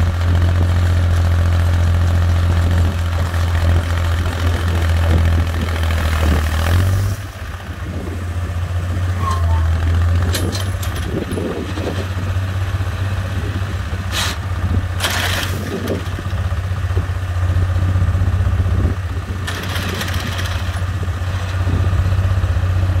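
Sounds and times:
tractor engine running: 0.0 - 23.0.

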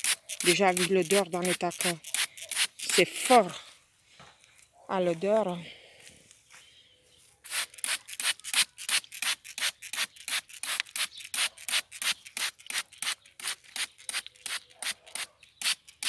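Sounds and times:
spray bottle squirting: 0.0 - 3.4, 7.4 - 16.0.

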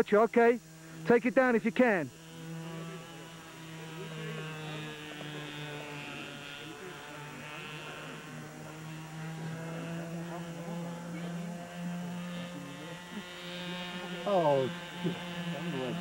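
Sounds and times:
model airplane engine: 0.0 - 16.0.

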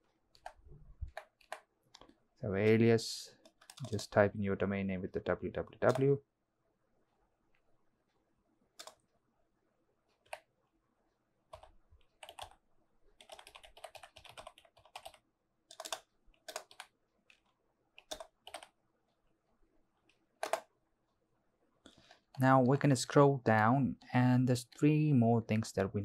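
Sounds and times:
computer keyboard typing: 0.3 - 2.1, 3.4 - 4.1, 5.8 - 6.2, 8.8 - 9.1, 10.1 - 10.5, 11.5 - 12.6, 13.2 - 18.8, 20.1 - 20.7.

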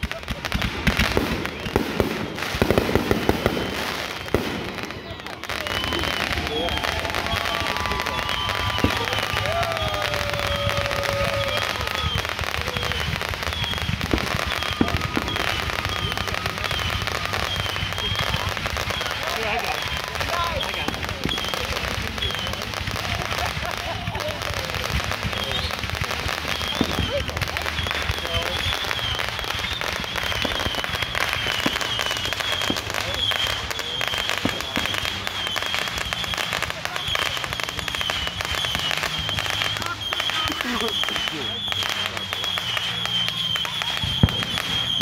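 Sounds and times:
fireworks launching and crackling: 0.0 - 45.0
sharp firework reports: 0.0 - 45.0.

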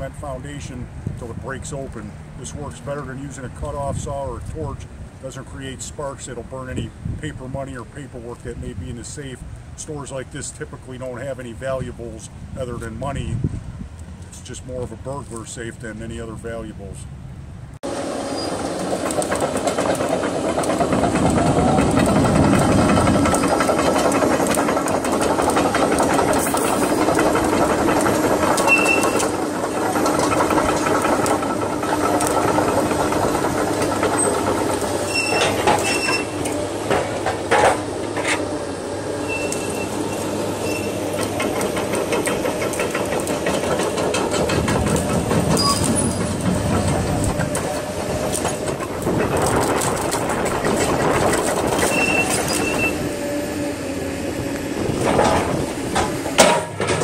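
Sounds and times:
excavator diesel engine running: 17.8 - 57.0
metal clanks: 18.5 - 38.5, 39.3 - 53.0, 55.0 - 57.0
high squeaks: 28.6 - 29.4, 35.0 - 36.5, 39.2 - 41.2, 45.5 - 46.4, 51.8 - 53.1.

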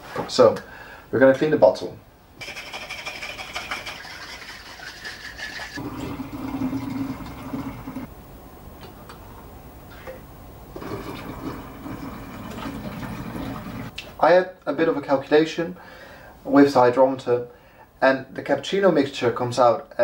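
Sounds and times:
liquid pouring and gurgling: 5.8 - 8.1, 10.7 - 13.9.

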